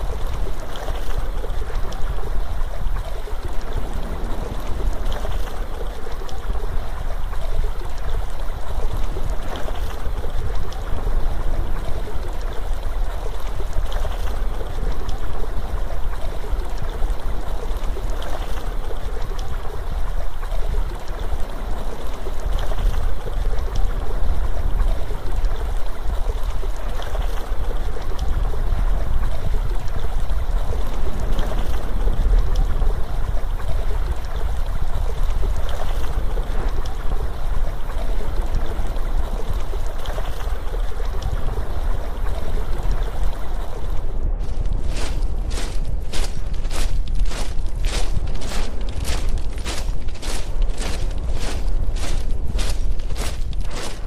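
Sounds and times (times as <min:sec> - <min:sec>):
rushing water: 0:00.0 - 0:54.0
deep low rumble: 0:03.4 - 0:06.5.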